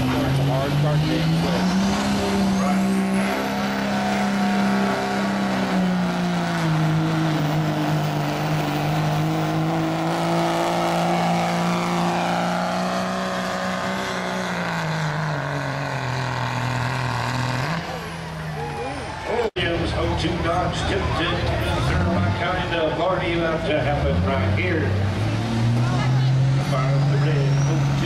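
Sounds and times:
diesel truck engine at high revs: 0.0 - 28.0.

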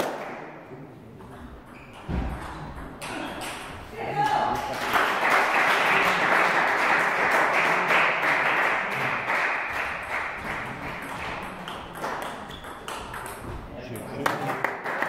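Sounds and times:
spectators applauding: 4.2 - 12.5, 14.2 - 15.0.

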